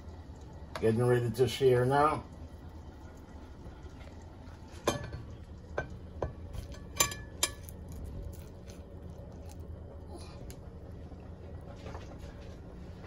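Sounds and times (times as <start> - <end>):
kitchenware clinking: 4.8 - 7.9.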